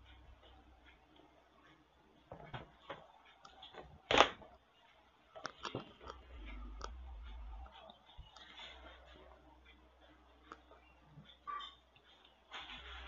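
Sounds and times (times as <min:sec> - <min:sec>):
low hum: 0:04.7 - 0:12.0.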